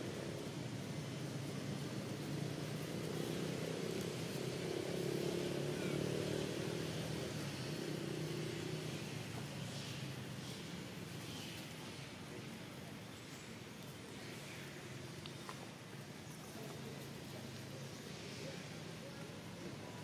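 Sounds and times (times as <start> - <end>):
vehicle engine hum: 0.0 - 13.1.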